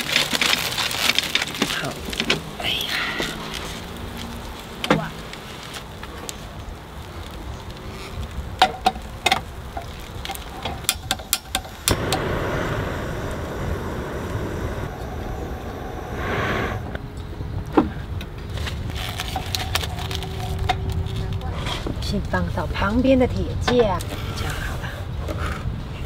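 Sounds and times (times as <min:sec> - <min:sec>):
aluminium foil crinkling: 0:00.0 - 0:11.8, 0:18.5 - 0:22.4
gas burner hissing: 0:01.2 - 0:20.7.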